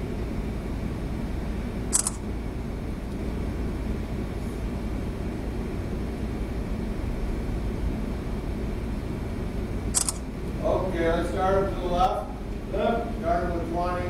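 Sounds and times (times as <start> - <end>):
ship machinery rumble: 0.0 - 14.0
sharp hiss-click: 1.9 - 2.2, 9.9 - 10.3.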